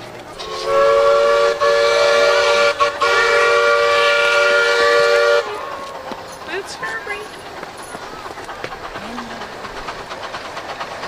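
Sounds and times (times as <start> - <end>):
chime steam whistle blasts: 0.4 - 6.0.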